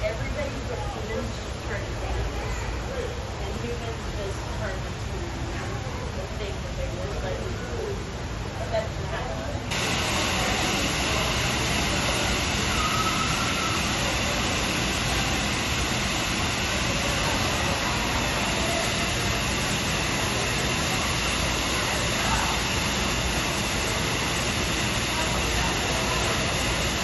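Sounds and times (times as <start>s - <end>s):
loud rushing noise: 9.7s - 27.0s
faint short whistle: 12.8s - 13.8s.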